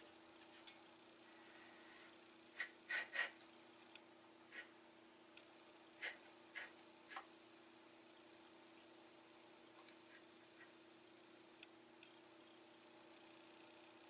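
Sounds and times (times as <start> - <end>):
faint steady hum: 0.0 - 14.0.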